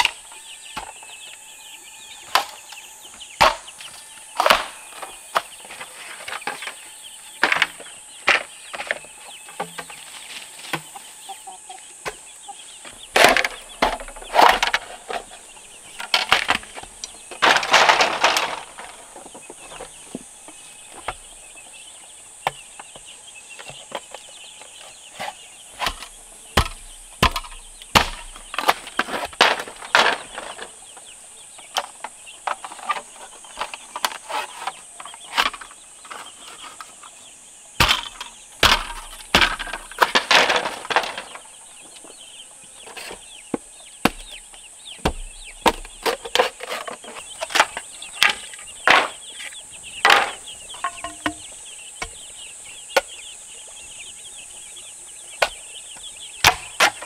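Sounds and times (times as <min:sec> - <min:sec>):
chickens clucking: 0:00.0 - 0:57.0
sharp knocks: 0:25.8 - 0:30.7, 0:37.8 - 0:41.4, 0:43.5 - 0:46.4.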